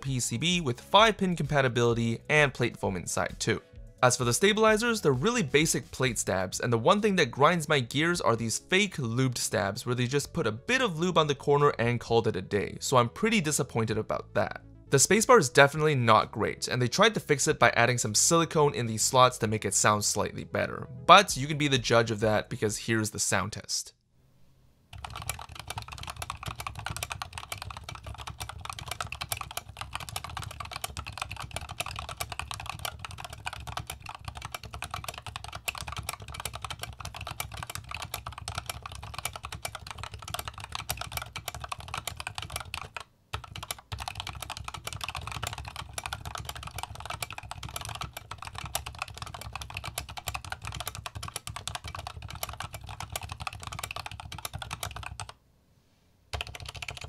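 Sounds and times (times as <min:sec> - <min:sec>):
mechanical keyboard key clacks: 0:25.0 - 0:55.3.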